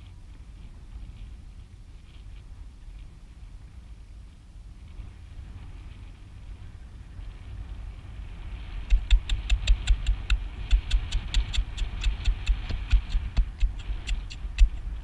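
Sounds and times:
rapid uneven knocks: 0:08.9 - 0:14.9.

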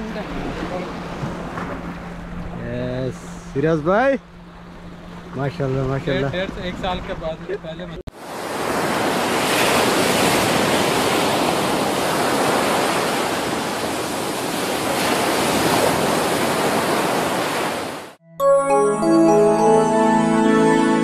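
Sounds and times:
surf breaking on shore: 0:08.2 - 0:18.0
music: 0:18.2 - 0:21.0.

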